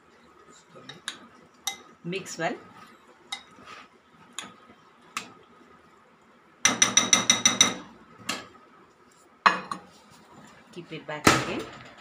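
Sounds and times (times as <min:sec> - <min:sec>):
spoon tapping against dish: 0:00.9 - 0:01.9, 0:03.3 - 0:03.6, 0:06.6 - 0:08.5.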